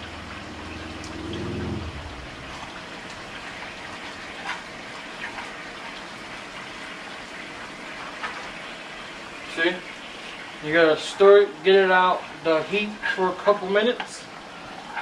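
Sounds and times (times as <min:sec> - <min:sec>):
low hum: 0:00.0 - 0:03.6.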